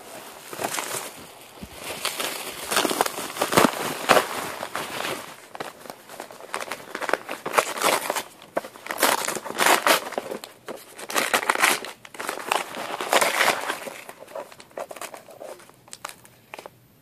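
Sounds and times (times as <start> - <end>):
bubble wrap crinkling: 0.0 - 16.7.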